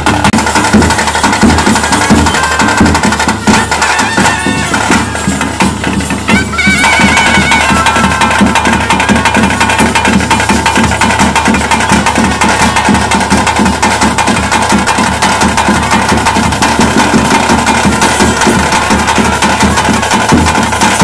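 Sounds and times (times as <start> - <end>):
fast drumming: 0.0 - 21.0
steady high tone: 2.1 - 8.7.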